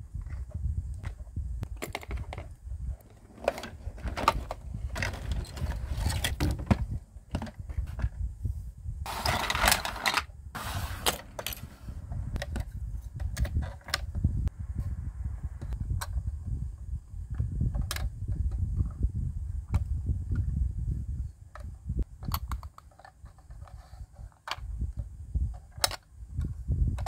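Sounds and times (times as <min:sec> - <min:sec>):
plastic toy parts clicking: 0:17.7 - 0:18.1, 0:21.5 - 0:24.7, 0:25.5 - 0:27.0.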